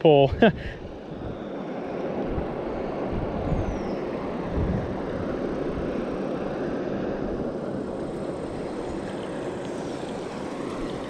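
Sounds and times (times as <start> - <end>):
water pouring through spillway: 7.8 - 11.0.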